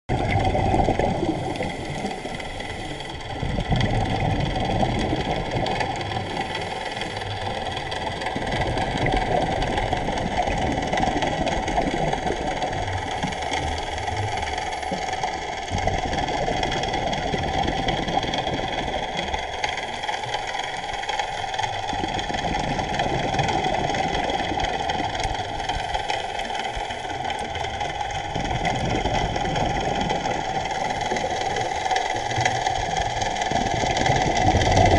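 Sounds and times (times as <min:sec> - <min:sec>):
exhaled bubbles rumbling: 0:00.1 - 0:34.9
steady crackle: 0:00.1 - 0:34.9
diver breathing through regulator: 0:01.2 - 0:03.6, 0:06.0 - 0:07.9, 0:25.5 - 0:27.5.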